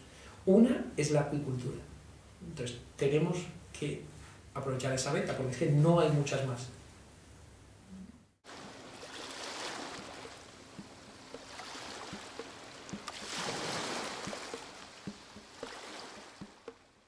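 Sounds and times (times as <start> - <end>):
rushing water: 8.4 - 17.0
small splashes and drips: 8.5 - 17.0.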